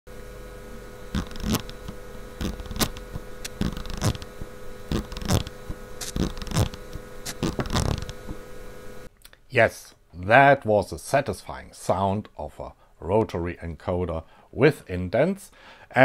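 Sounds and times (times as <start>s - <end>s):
faint steady hum: 0.1s - 16.0s
rotary encoder clicking: 1.2s - 8.4s.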